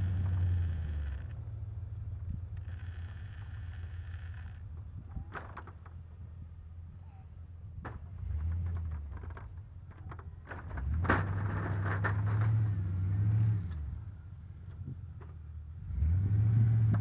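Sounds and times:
plow blade scraping snow: 0.0 - 1.3
truck engine working: 0.0 - 5.0.

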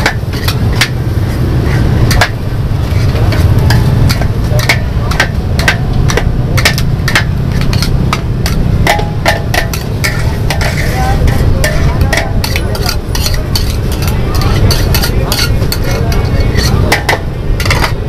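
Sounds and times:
metal spatulas scraping a wok: 0.0 - 18.0
steady low rumble: 0.0 - 18.0.

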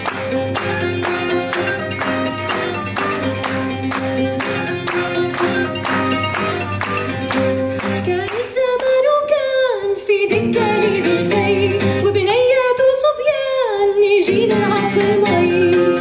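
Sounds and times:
hand percussion: 0.0 - 8.9
plucked lutes: 0.0 - 9.4.

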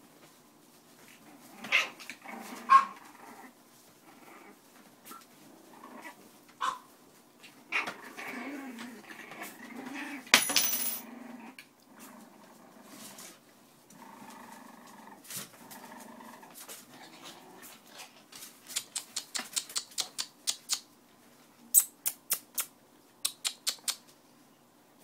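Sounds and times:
puppy growling: 1.2 - 4.6, 5.4 - 6.3, 7.6 - 10.3, 11.0 - 13.3, 13.9 - 18.2
puppy yapping: 2.7 - 3.0, 6.6 - 6.9.

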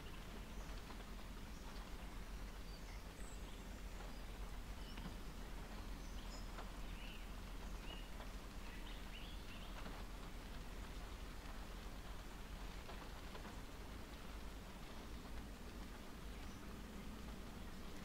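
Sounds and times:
rain pattering on car roof: 0.0 - 18.0.

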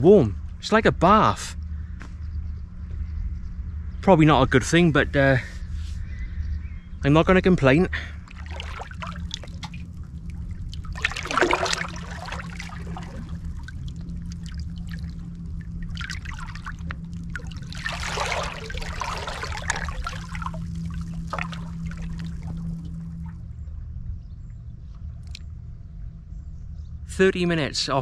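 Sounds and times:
steady low rumble: 0.0 - 28.0
waves lapping at seawall: 8.2 - 23.0.

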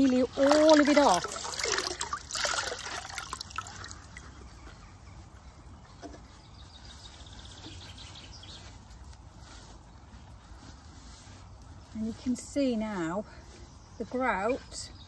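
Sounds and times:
water splashing in a bucket: 0.0 - 4.3.

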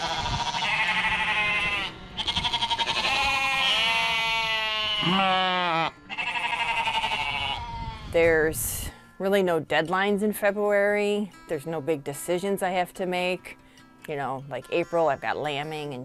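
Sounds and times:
sheep bleating: 0.0 - 8.1.

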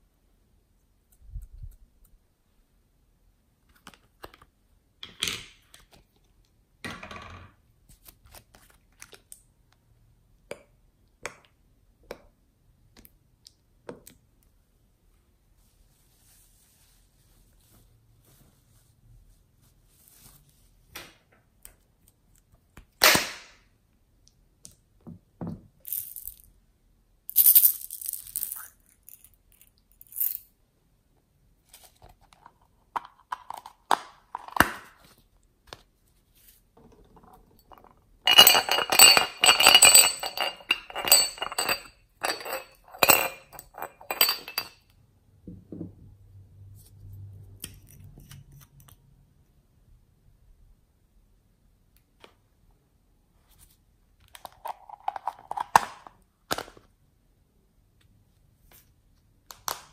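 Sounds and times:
clinks and rattles: 37.2 - 44.8.

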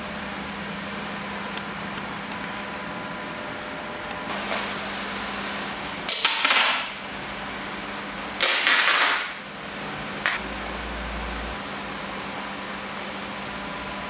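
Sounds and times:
steady background hum: 0.0 - 14.0
packing tape ripping off roll: 8.4 - 9.4.

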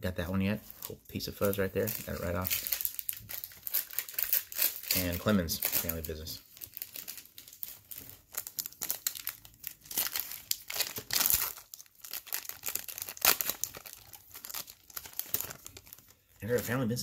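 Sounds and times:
foil wrapper crinkling and tearing: 0.7 - 17.0.

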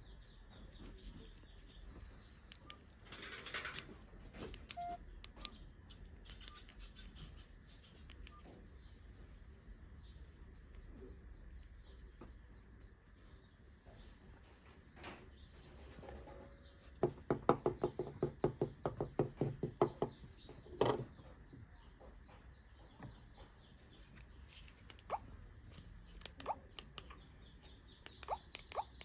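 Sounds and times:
phone key beeps: 4.7 - 5.6.

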